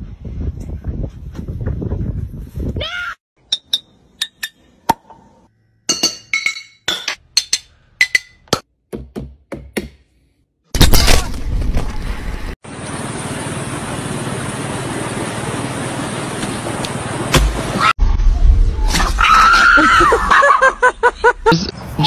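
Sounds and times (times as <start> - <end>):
glass bottles clinking: 5.9 - 8.4.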